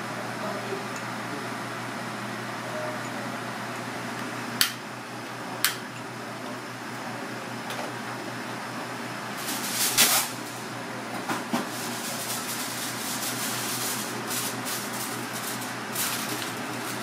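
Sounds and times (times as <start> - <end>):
kitchen hum: 0.0 - 17.0
aluminium foil crinkling: 9.4 - 10.5, 11.7 - 17.0
foil ripping: 9.4 - 10.5, 11.7 - 17.0.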